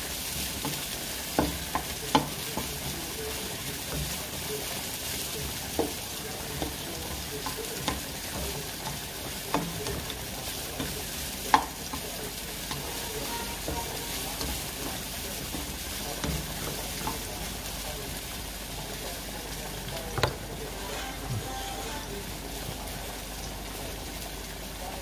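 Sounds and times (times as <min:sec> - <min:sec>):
onions and meat sizzling in a wok: 0:00.0 - 0:25.0
spatula knocking against pan: 0:01.3 - 0:02.9, 0:10.8 - 0:12.1.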